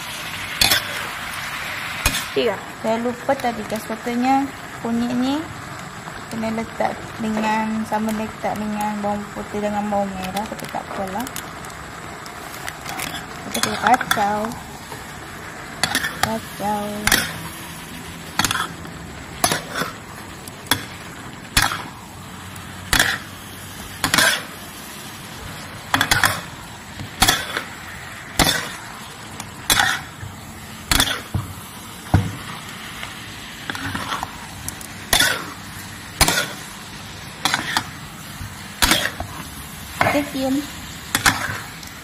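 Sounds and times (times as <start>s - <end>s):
metal spatula scraping wok: 0.0s - 2.4s, 12.4s - 31.3s, 32.4s - 41.8s
frying sizzle: 0.0s - 42.0s.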